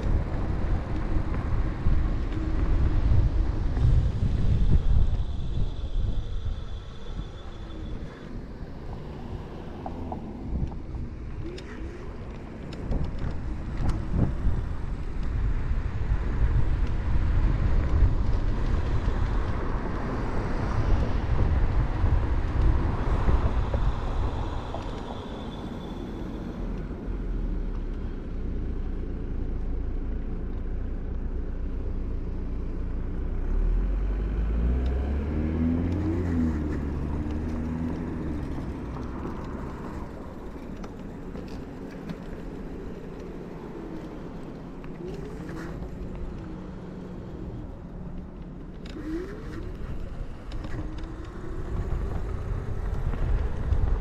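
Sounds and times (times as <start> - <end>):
wind rush: 0.0 - 9.7, 49.0 - 54.0
passing car engine: 0.0 - 14.6, 33.3 - 54.0
scooter tyre noise: 0.0 - 54.0.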